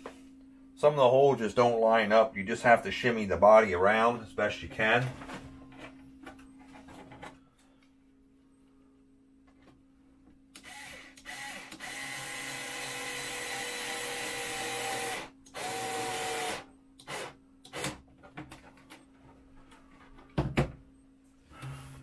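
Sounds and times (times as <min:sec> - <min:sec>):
small electric motor whirring: 0:10.6 - 0:17.9.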